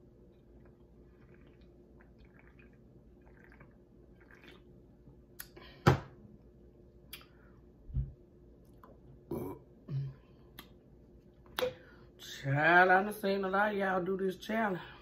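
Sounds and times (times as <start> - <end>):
drinking and swallowing: 0.4 - 4.7.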